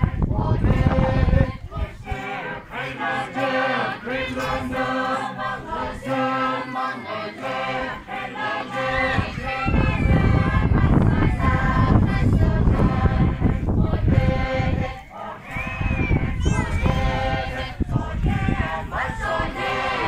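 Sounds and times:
loud low rushing noise: 0.0s - 2.8s, 9.0s - 20.0s
voices chanting in unison: 0.0s - 20.0s.

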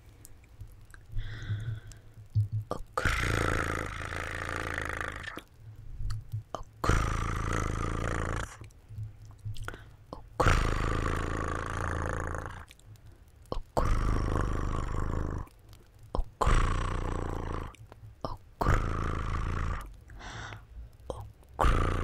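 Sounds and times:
wet mouth clicks: 0.2s - 22.0s
rough breath sounds: 0.9s - 2.3s, 9.6s - 14.4s, 18.6s - 22.0s.

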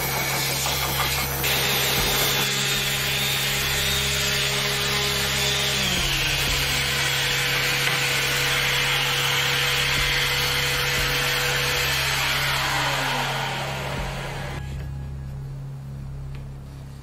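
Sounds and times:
orbital sander running: 0.0s - 14.7s.

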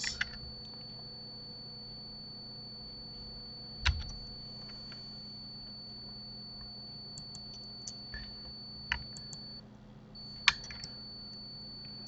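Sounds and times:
faint hum: 0.0s - 12.0s
keyboard and mouse clicks: 3.8s - 4.2s, 8.9s - 9.4s, 10.4s - 11.0s.

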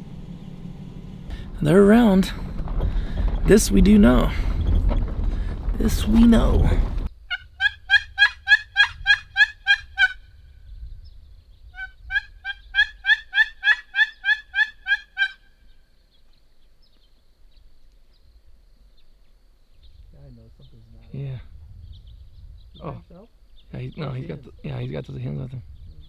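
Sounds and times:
turkey yelping: 7.3s - 10.2s, 11.8s - 15.5s.

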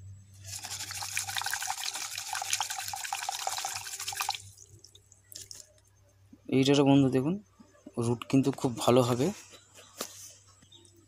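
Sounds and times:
water splashing in a bowl: 0.4s - 5.7s.

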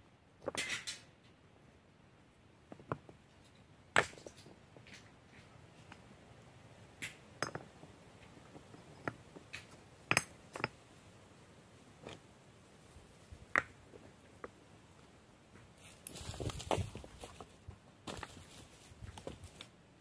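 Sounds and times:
stones clinking and knocking: 2.7s - 5.2s, 7.0s - 10.8s.

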